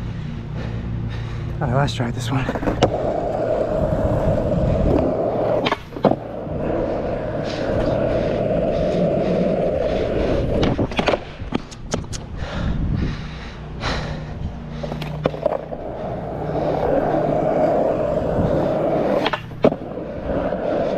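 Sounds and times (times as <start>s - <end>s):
skateboard rolling on asphalt: 0.0s - 20.9s
skateboard clacking on pavement: 2.4s - 12.2s, 14.8s - 20.9s.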